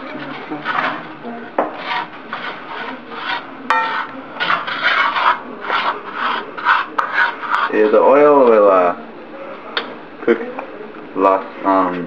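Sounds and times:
wooden spoon scraping a skillet: 0:00.0 - 0:08.4.

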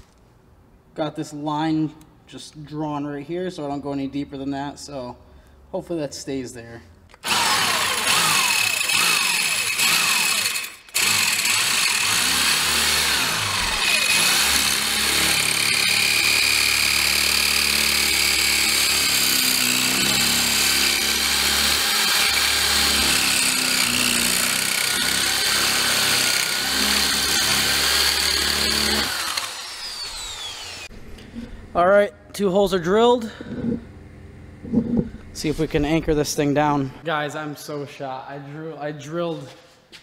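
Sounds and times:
power drill boring into concrete: 0:07.2 - 0:30.9.

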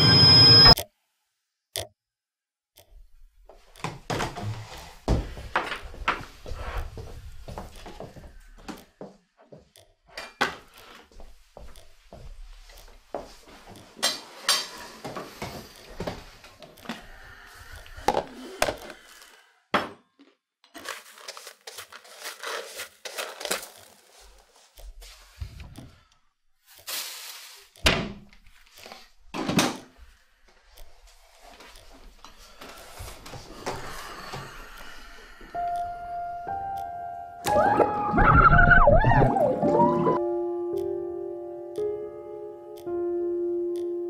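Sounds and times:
brush sweeping into plastic dustpan: 0:26.7 - 0:27.8
household knocks and clatter: 0:29.3 - 0:29.9.

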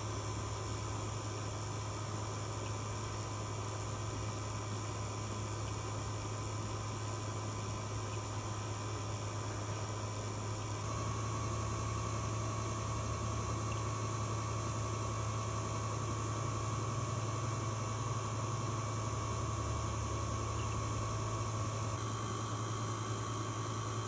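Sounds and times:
vacuum pump humming and hissing: 0:00.0 - 0:24.0.

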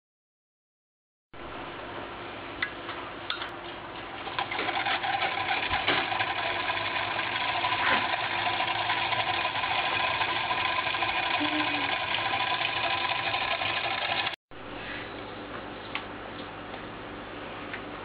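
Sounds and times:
electric motor clattering: 0:04.2 - 0:14.4
electric motor clicks: 0:04.3 - 0:14.4.

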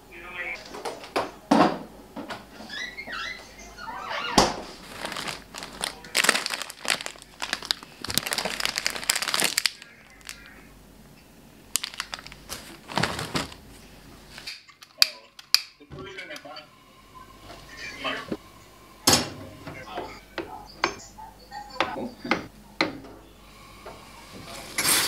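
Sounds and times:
plastic packaging crinkling: 0:04.7 - 0:10.6, 0:11.7 - 0:13.8.

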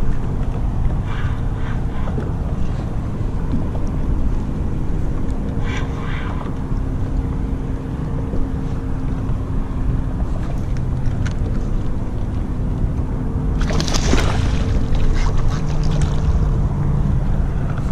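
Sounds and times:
wind rumble on microphone: 0:00.0 - 0:17.9
water chop around kayak: 0:13.4 - 0:16.7
water splashing: 0:13.4 - 0:17.0.

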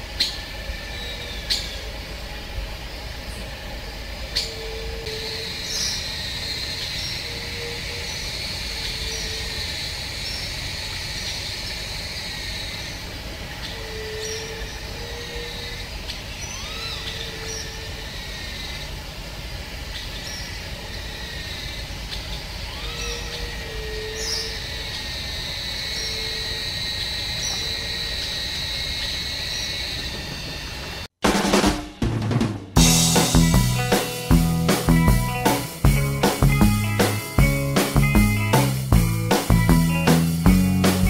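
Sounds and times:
faint bird chirps: 0:00.0 - 0:31.0
high-pitched insect chorus: 0:00.0 - 0:31.1.

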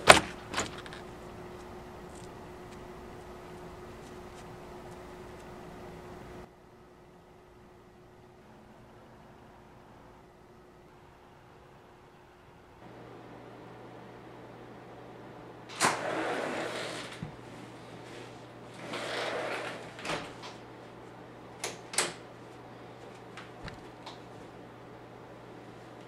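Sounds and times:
sliding glass door rolling: 0:15.7 - 0:20.7.

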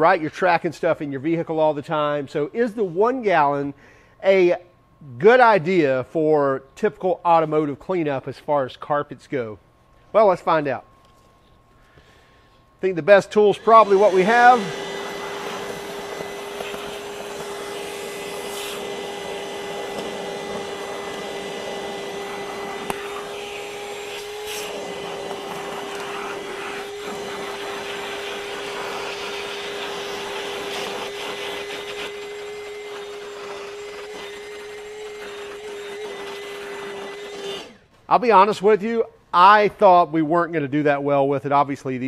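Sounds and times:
wet dry vacuum running: 0:11.8 - 0:37.8.

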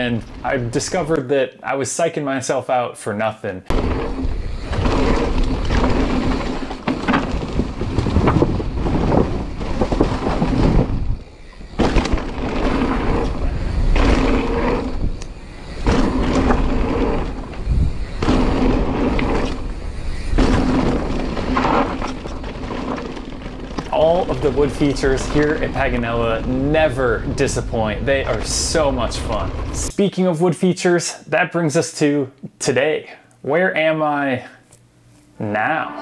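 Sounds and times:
bike tyres rattling on gravel: 0:00.0 - 0:01.2, 0:03.7 - 0:29.9
wind buffeting microphone: 0:03.7 - 0:29.9.

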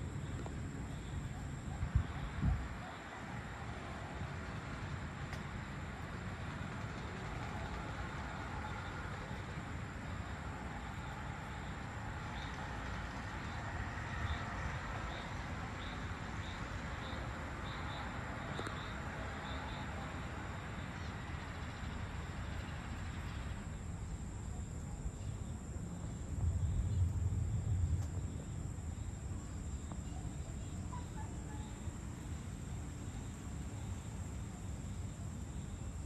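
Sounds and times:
faint insect chirps: 0:00.0 - 0:03.6, 0:05.6 - 0:36.0
low rumble: 0:25.7 - 0:30.2.

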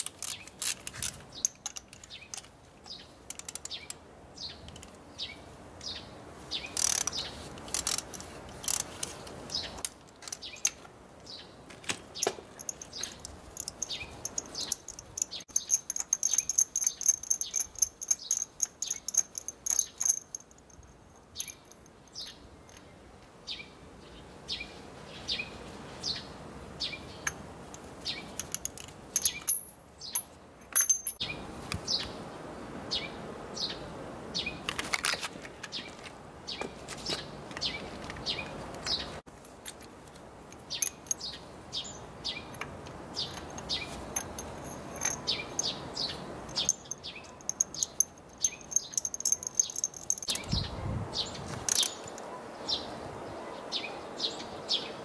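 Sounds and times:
small bird chirping: 0:01.3 - 0:07.9, 0:10.4 - 0:27.4, 0:40.6 - 0:55.0
metallic clinks of hand tools: 0:12.2 - 0:22.4, 0:28.4 - 0:31.2, 0:40.5 - 0:41.4, 0:42.5 - 0:50.5, 0:51.7 - 0:52.3.

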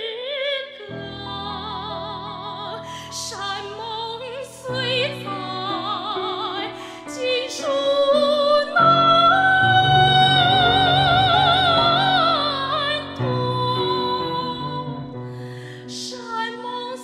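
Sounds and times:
woman singing operatically: 0:00.0 - 0:15.1, 0:15.8 - 0:17.0
chordal accompaniment: 0:07.2 - 0:15.6.

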